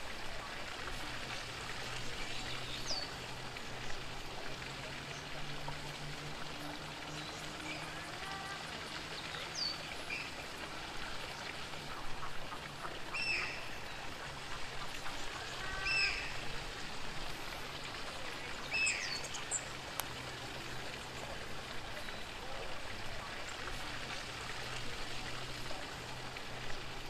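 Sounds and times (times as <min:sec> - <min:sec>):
running water hiss: 0:00.0 - 0:27.0
birds chirping: 0:01.9 - 0:05.4, 0:06.5 - 0:24.5.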